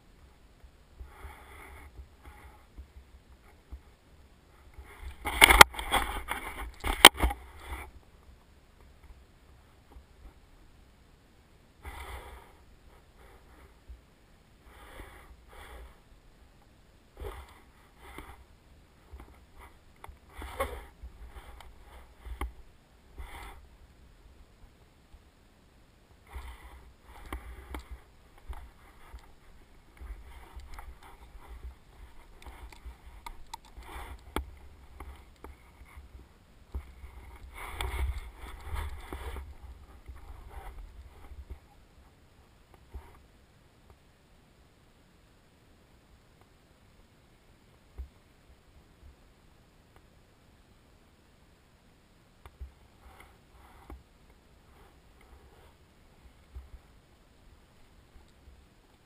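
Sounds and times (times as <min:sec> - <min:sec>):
ski edges scraping over snow: 0:26.3 - 0:41.7.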